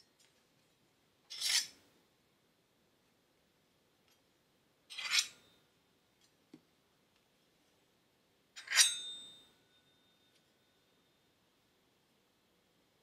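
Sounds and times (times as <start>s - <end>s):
sword swish with ringing tone: 8.6s - 10.2s.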